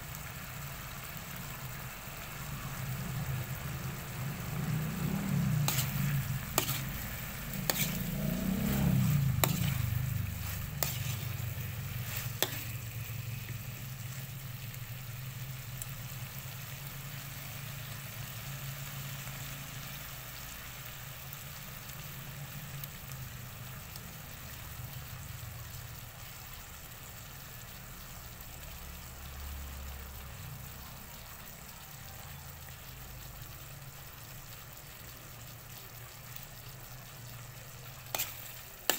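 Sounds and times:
sauce sizzling in a pan: 0.0 - 38.9
low hum: 2.6 - 14.9.

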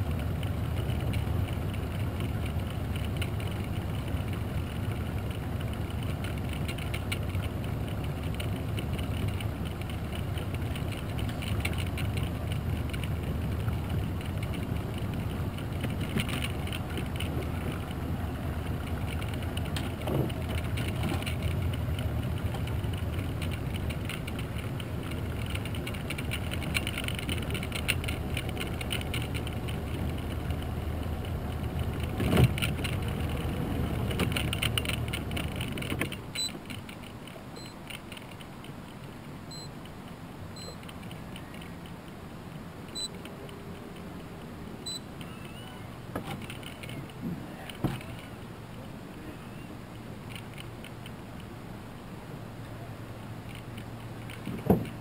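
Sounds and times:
outboard motor running: 0.0 - 36.5.

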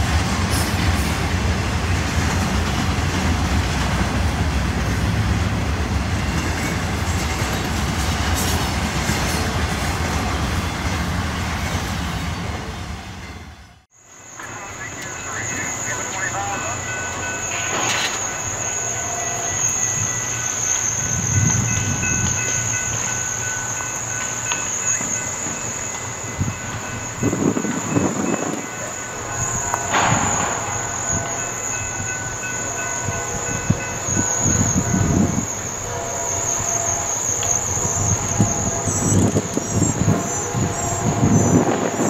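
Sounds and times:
train rumbling by: 0.0 - 42.0
high-pitched insect drone: 14.0 - 42.0.

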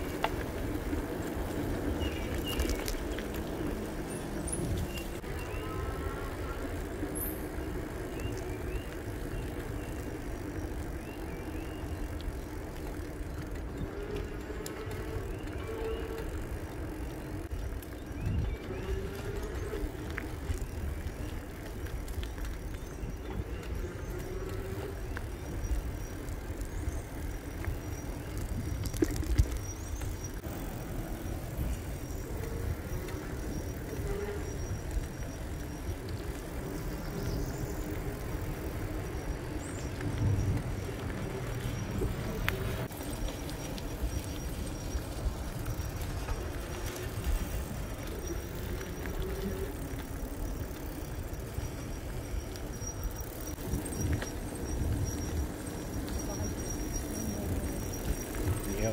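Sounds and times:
tyre noise: 0.0 - 58.9
small clicks and rattles: 11.7 - 30.5.

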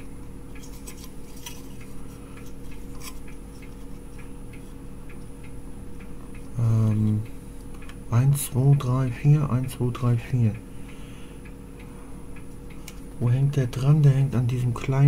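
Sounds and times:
steady electrical hum: 0.0 - 15.0
person humming: 6.6 - 7.2.

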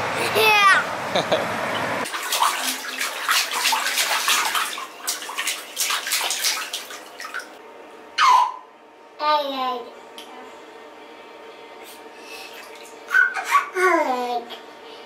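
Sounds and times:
bath water splashing: 2.0 - 7.6, 12.4 - 13.4.

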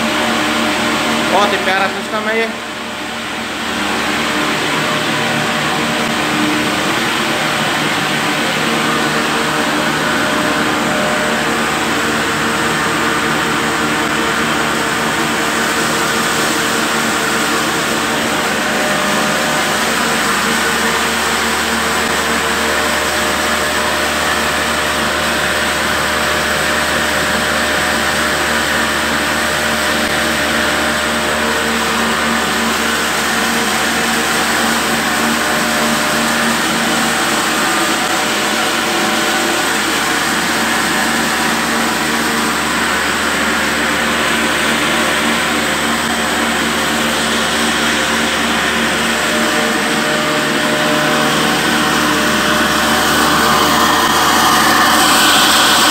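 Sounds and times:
flour mill humming and whirring: 0.0 - 55.9.

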